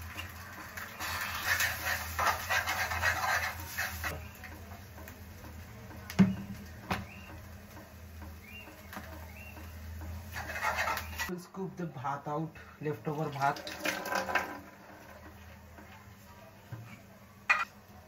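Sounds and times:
gas stove flickering hiss: 0:00.0 - 0:11.3.

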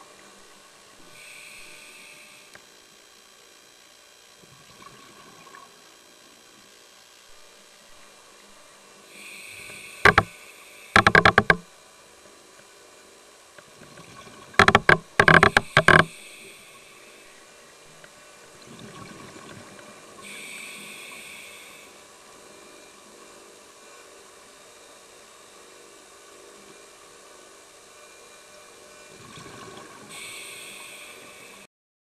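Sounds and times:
hissing inhale through regulator: 0:01.1 - 0:02.6, 0:09.1 - 0:11.6, 0:14.6 - 0:17.4, 0:20.2 - 0:22.0, 0:30.0 - 0:31.7.

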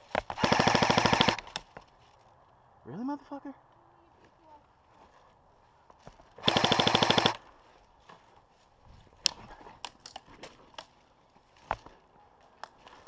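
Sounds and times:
airsoft gun full-auto burst: 0:00.4 - 0:01.4, 0:06.4 - 0:07.4.

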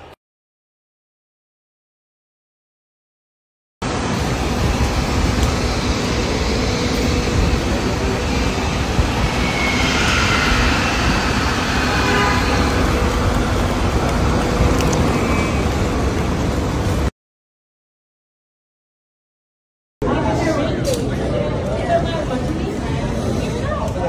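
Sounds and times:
road traffic rumble: 0:03.8 - 0:17.1.

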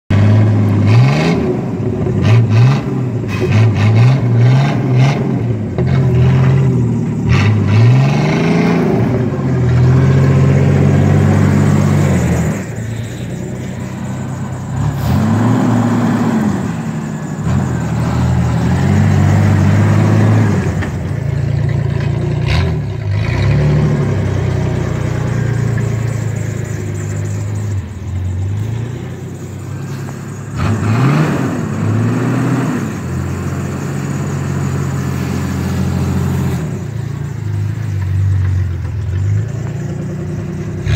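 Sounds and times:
pickup truck engine revving: 0:00.1 - 0:40.9.

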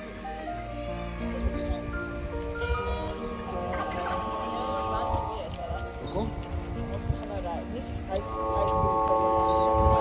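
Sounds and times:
music with long held notes: 0:00.0 - 0:10.0
steady low rumble: 0:03.2 - 0:10.0.

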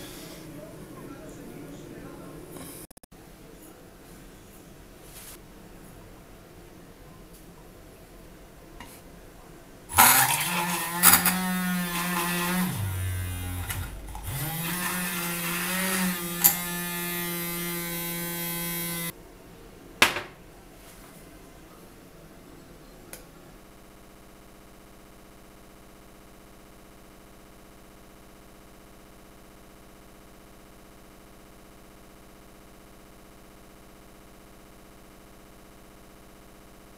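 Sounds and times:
electric mixer motor humming: 0:09.9 - 0:19.1
knock: 0:20.0 - 0:20.4.

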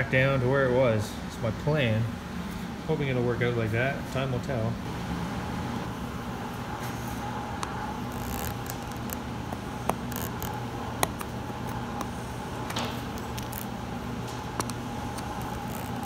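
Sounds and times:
steady background hum: 0:00.0 - 0:16.0
staples popping free clicks: 0:07.6 - 0:16.0
screwdriver scraping: 0:08.1 - 0:09.2, 0:09.9 - 0:12.1, 0:14.6 - 0:16.0.

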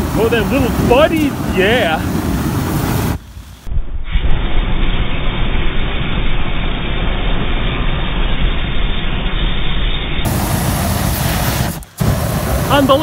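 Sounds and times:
flamethrower flame rushing: 0:00.0 - 0:13.0.

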